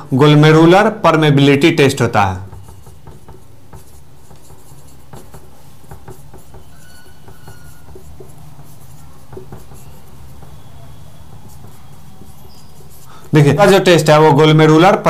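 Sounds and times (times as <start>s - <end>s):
marker pen writing on whiteboard: 0.3s - 15.0s
marker squeak: 2.4s - 13.8s.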